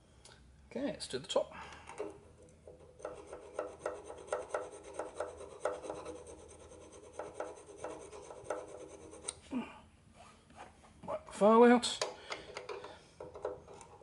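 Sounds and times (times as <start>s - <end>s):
file scraping metal points: 2.8s - 9.4s.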